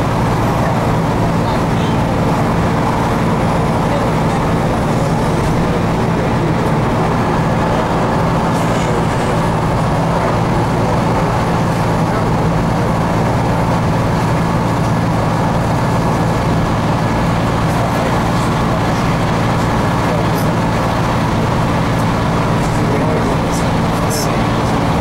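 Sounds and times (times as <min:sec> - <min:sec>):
bus engine drone: 0:00.0 - 0:25.0
tyre and road noise: 0:00.0 - 0:25.0.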